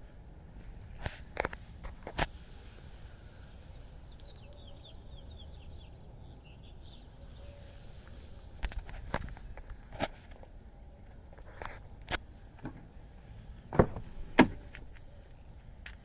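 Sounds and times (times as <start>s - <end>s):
small bird chirps: 3.6s - 8.5s.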